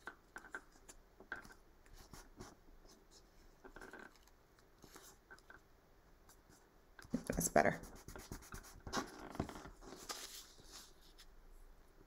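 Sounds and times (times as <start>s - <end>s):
paper rustling: 8.9s - 11.3s.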